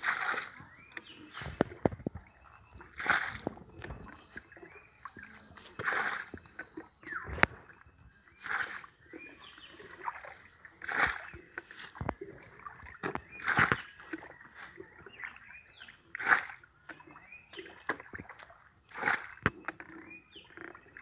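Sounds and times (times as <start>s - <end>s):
water scooped and splashed out: 0.0s - 1.8s, 2.8s - 4.4s, 5.8s - 6.4s, 8.3s - 8.9s, 9.9s - 12.0s, 18.9s - 19.4s.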